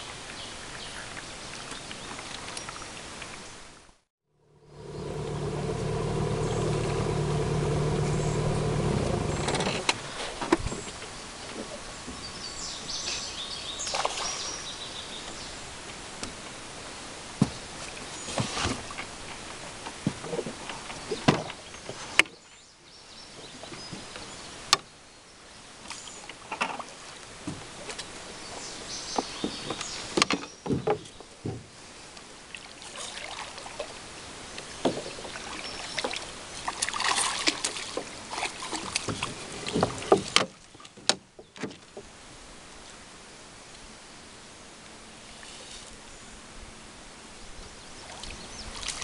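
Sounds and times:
paddle splashes: 4.8s - 11.8s, 13.7s - 15.4s, 32.4s - 42.1s, 48.0s - 49.0s.

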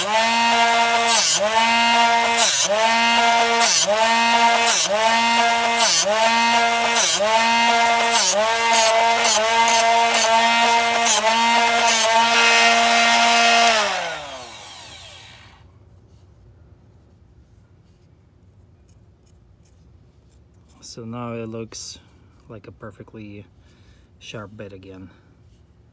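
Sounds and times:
drill bit grinding on wheel: 0.0s - 15.6s
motor winding down: 0.0s - 15.6s
sharpener motor running: 0.0s - 15.6s.

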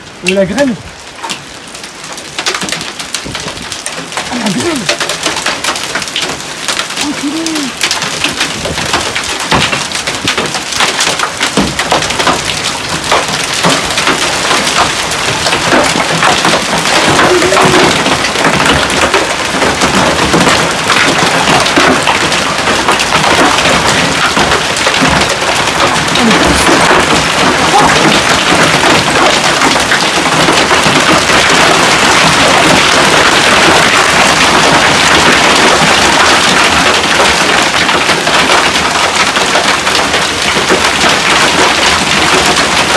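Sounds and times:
hail and heavy rain pelting: 0.0s - 42.9s.

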